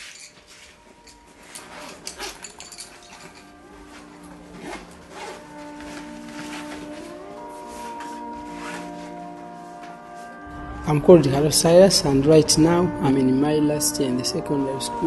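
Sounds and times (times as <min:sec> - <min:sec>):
zipper scraping: 0:00.0 - 0:09.7
fabric bag rustling: 0:00.0 - 0:10.5
quiet music with held notes: 0:00.0 - 0:15.0.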